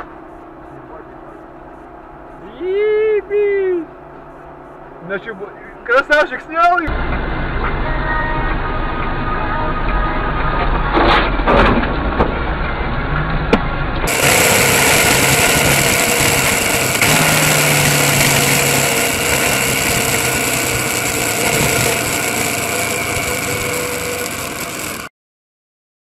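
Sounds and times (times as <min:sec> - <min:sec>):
traffic noise: 0:00.0 - 0:25.1
motorcycle engine running: 0:12.0 - 0:25.1.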